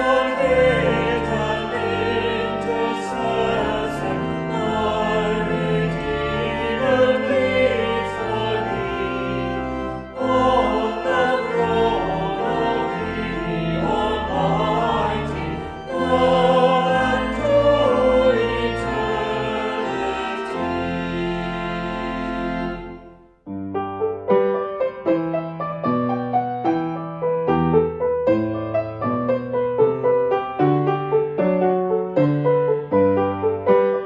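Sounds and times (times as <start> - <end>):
group singing a hymn: 0.0 - 22.6.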